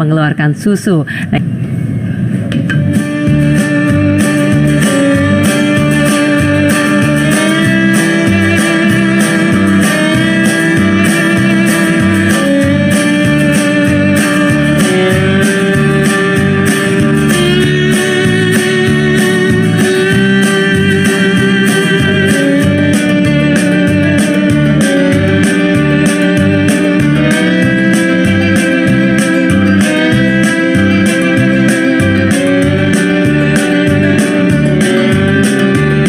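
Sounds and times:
pulsing bass line: 0.0s - 36.0s
guitar melody: 2.1s - 36.0s.

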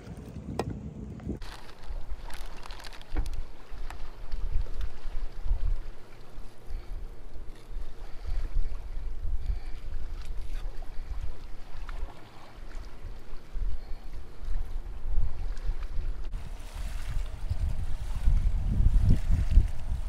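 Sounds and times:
wind buffeting microphone: 0.0s - 1.4s, 6.6s - 12.0s, 12.9s - 20.0s.

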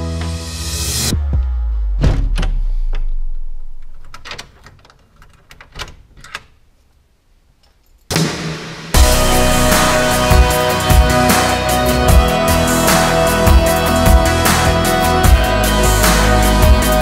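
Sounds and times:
door handle and latch clicking: 3.8s - 6.7s.

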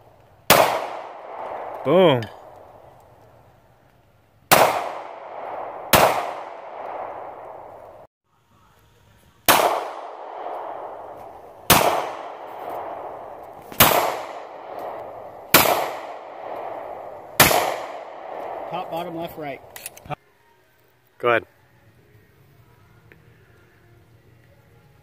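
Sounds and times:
pistol shots with rolling echo: 0.5s - 3.1s, 4.5s - 8.1s, 9.4s - 19.9s.

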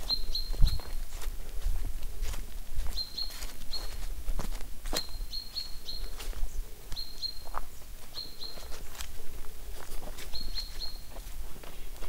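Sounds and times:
songbird chirping: 0.0s - 12.0s.

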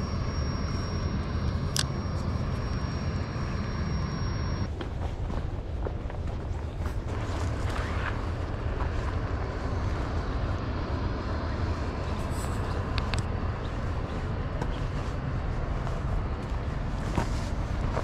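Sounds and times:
footsteps through dry grass: 4.7s - 10.6s, 13.6s - 18.0s.

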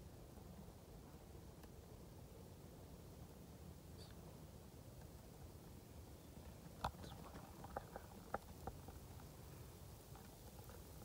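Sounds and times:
faint clicks and rustles: 6.4s - 11.0s.

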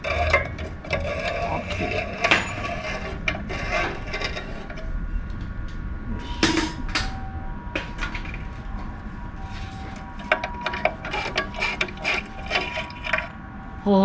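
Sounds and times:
sharp metallic clank: 6.3s - 7.2s.

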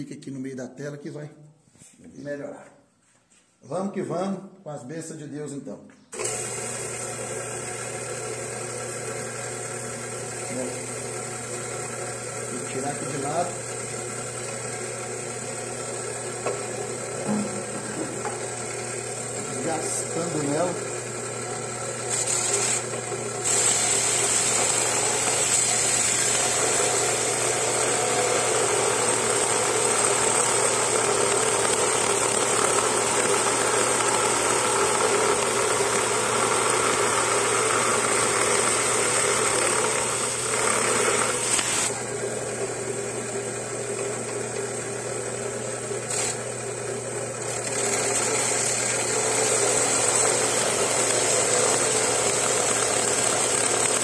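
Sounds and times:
saw motor hum: 6.2s - 54.0s
saw blade grinding crystal: 22.0s - 41.9s, 47.4s - 54.0s.

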